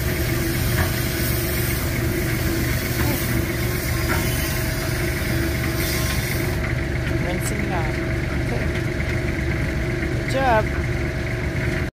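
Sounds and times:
hose nozzle spraying water on metal: 0.0 - 6.7
engine idling hum: 0.0 - 11.9.

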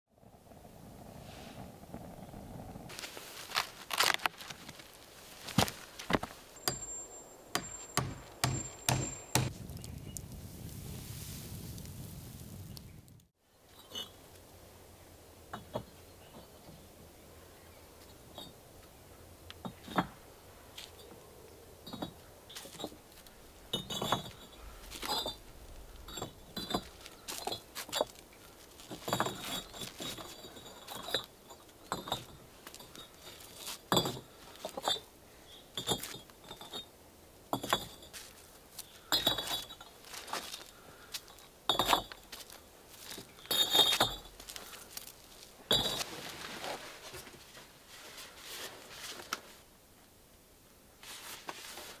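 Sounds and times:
bricks clinking and knocking: 5.6 - 9.5, 21.9 - 23.0, 23.7 - 25.4, 26.0 - 28.2, 28.9 - 35.1, 35.7 - 38.3, 39.0 - 39.9, 41.7 - 44.8.

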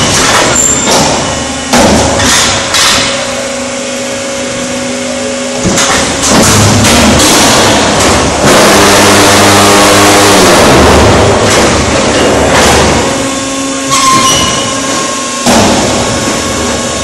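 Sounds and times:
sharp metallic knocks: 0.0 - 3.3, 13.9 - 16.4
block making machine running: 0.0 - 17.0
steady machine hum: 0.0 - 17.0.

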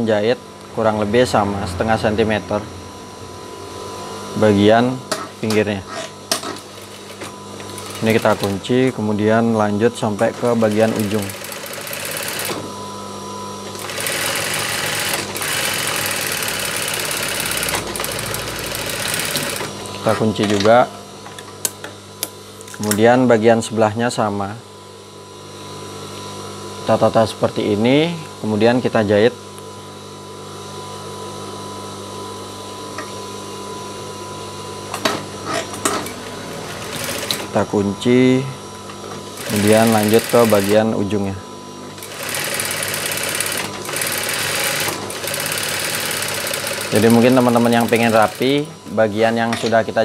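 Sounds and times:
sewing machine stitching: 6.4 - 8.6, 10.4 - 12.6, 13.7 - 19.7, 36.6 - 37.5, 39.4 - 40.8, 42.0 - 48.7.

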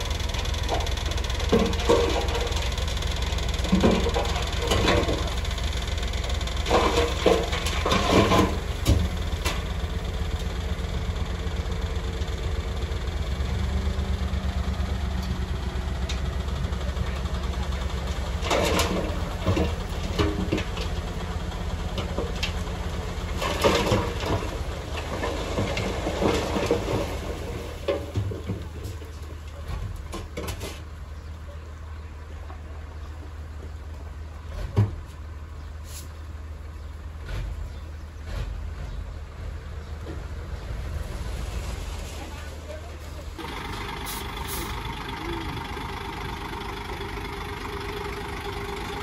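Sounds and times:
metal clanking and rattling: 0.0 - 9.8, 18.4 - 30.8
bulldozer diesel engine running: 0.0 - 49.0.

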